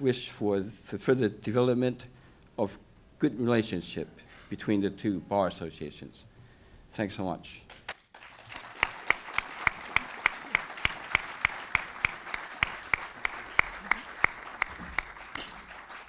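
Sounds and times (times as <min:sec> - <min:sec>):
hands clapping close to microphone: 0:07.7 - 0:16.0
audience applauding: 0:08.1 - 0:16.0.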